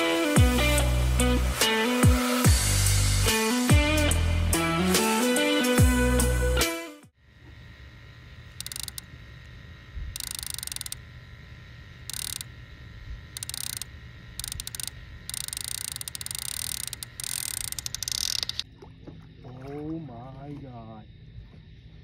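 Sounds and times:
fishing reel drag ratcheting: 8.5s - 9.1s, 10.2s - 11.0s, 12.0s - 12.6s, 13.3s - 18.6s.

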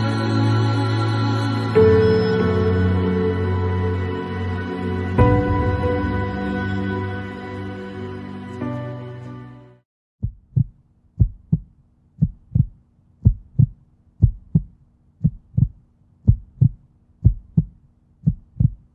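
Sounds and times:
music: 0.0s - 9.9s
heartbeat thumps: 10.2s - 18.9s.

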